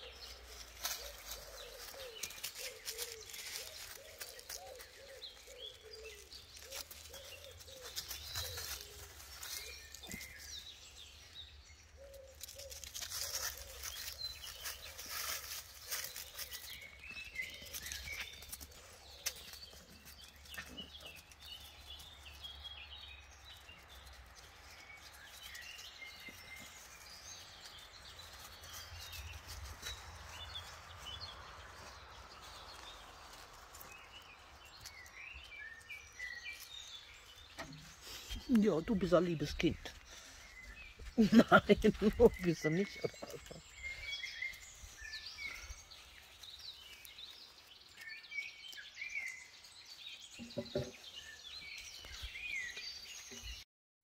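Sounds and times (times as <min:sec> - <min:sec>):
small birds chirping: 0:00.0 - 0:53.7
rustling and clicks: 0:12.3 - 0:17.0.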